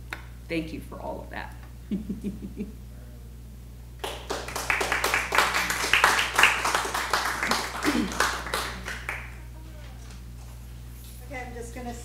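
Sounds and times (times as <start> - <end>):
audience applauding: 4.0 - 9.4.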